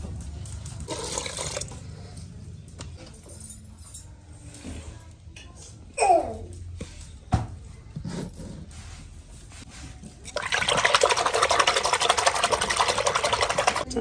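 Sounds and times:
hand splashing through buttermilk: 10.3 - 13.8.

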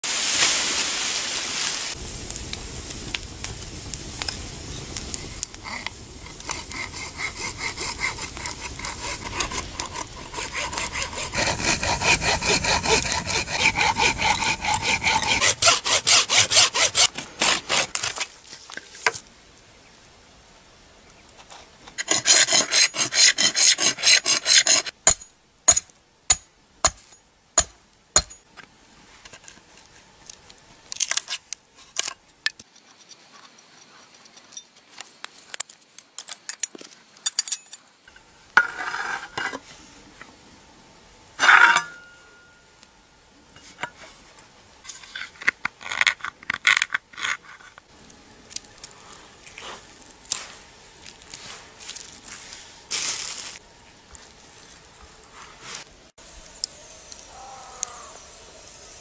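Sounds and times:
metal file rasping bone: 5.6 - 18.1, 22.0 - 25.0
scraping: 31.0 - 39.7, 41.4 - 42.5.

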